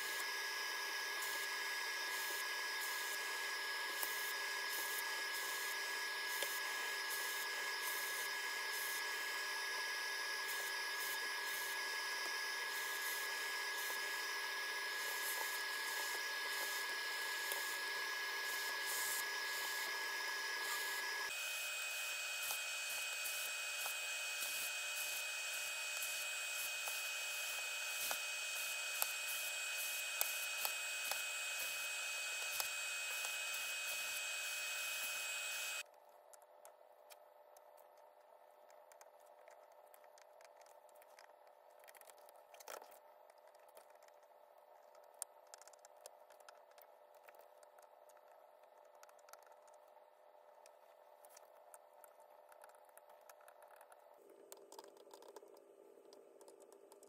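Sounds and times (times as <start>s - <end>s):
hot air gun hissing with fan whine: 0.0s - 35.8s.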